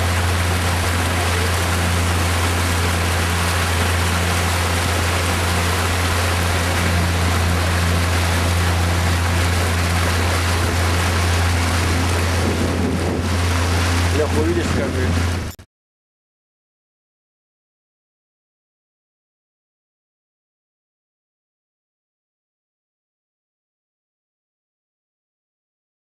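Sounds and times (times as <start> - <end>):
boat motor droning: 0.0 - 15.6
water and wind hiss: 0.0 - 15.6.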